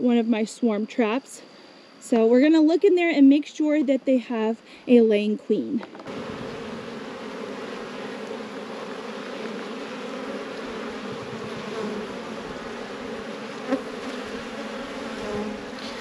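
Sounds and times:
bees buzzing: 5.9s - 16.0s.

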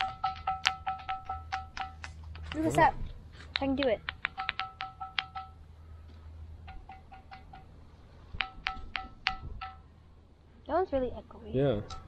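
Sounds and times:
pebble tapping ringing rock: 0.0s - 2.7s, 3.6s - 5.6s, 6.7s - 7.7s, 8.4s - 9.9s.

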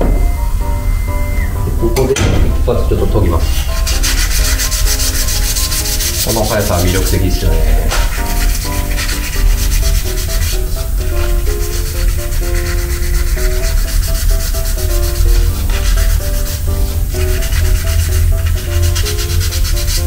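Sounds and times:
quiet background music: 0.0s - 20.0s
sandpaper rasping: 3.0s - 20.0s.

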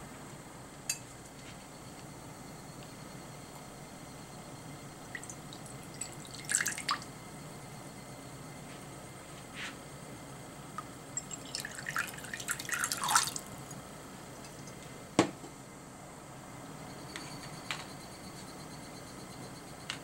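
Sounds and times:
water pouring into a glass bowl: 5.1s - 7.0s, 11.2s - 13.5s.

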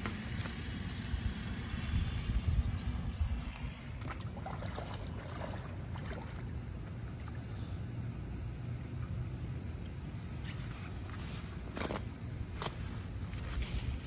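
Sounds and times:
steady low rumble: 0.0s - 14.0s
water sloshing and splashing: 3.6s - 7.7s.

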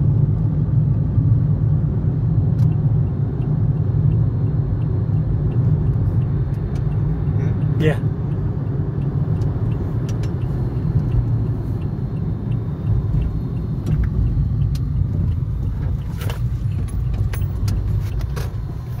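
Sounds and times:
road and engine rumble: 0.0s - 19.0s
light clicks and rattles: 13.2s - 19.0s.

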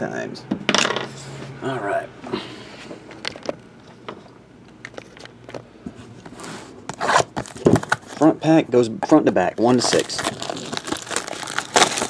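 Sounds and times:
plastic wrap crinkling: 6.9s - 8.3s, 9.4s - 12.0s.

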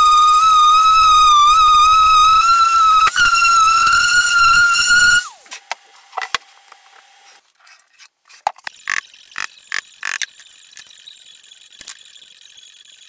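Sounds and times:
orbital sander whine: 0.0s - 5.7s.

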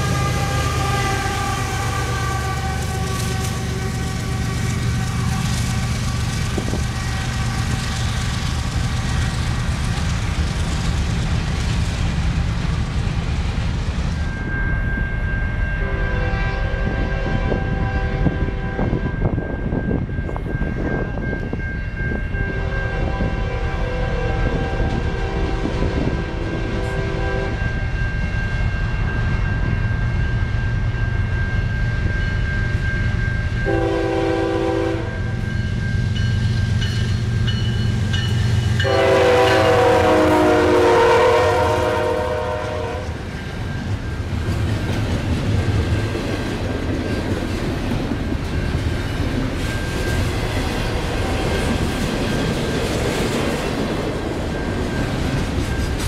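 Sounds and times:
locomotive air horn blasts: 0.0s - 5.6s, 15.8s - 19.0s, 22.5s - 27.6s, 33.6s - 35.3s, 38.8s - 43.2s
train wheels clickety-clack: 1.7s - 15.0s, 16.8s - 56.0s.

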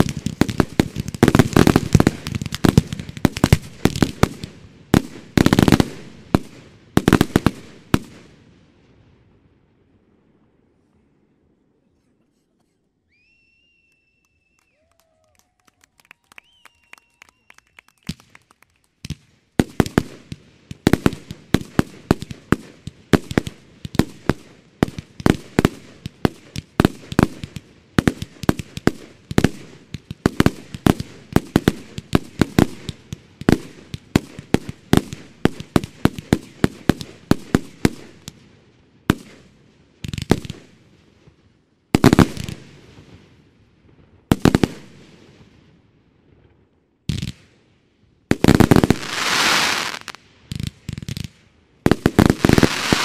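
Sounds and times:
fireworks shots and bangs: 0.0s - 8.5s, 19.0s - 38.4s, 39.1s - 40.8s, 42.0s - 43.1s, 47.1s - 47.5s, 48.3s - 53.0s.

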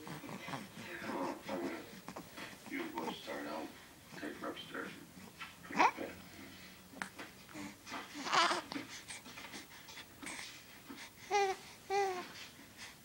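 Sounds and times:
infant cooing: 5.8s - 6.0s, 7.5s - 8.8s, 11.3s - 12.4s
infant breathy noises: 7.4s - 13.0s.

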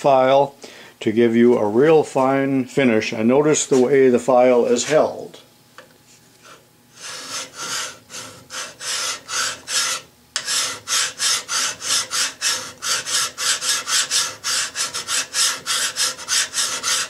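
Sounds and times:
hand file rasping on metal: 6.4s - 17.0s.

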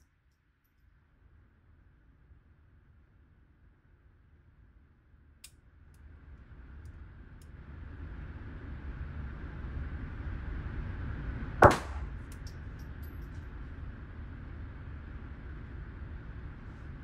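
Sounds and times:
steady low rumble: 6.1s - 17.0s
gunshot echoing indoors: 11.6s - 12.4s.

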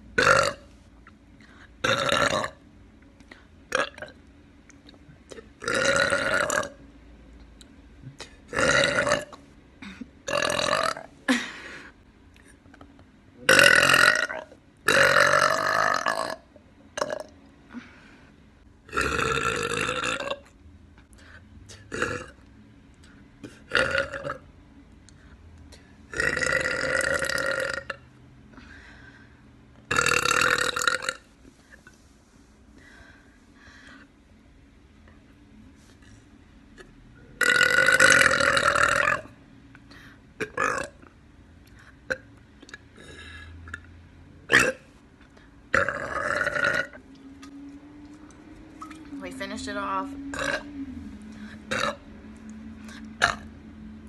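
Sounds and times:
woman belching: 0.2s - 0.6s, 1.8s - 2.6s, 3.7s - 4.2s, 5.4s - 6.8s, 8.5s - 11.4s, 13.4s - 17.4s, 18.9s - 20.4s, 21.9s - 22.4s, 23.4s - 24.4s, 26.1s - 28.0s, 29.9s - 31.2s, 37.4s - 39.3s, 40.4s - 41.1s, 44.5s - 44.8s, 45.7s - 47.0s, 50.3s - 50.7s, 51.7s - 52.0s, 53.2s - 53.4s.

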